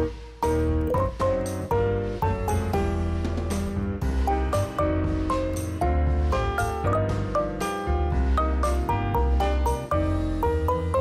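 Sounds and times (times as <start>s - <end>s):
melody over bass and beat: 4.0s - 11.0s.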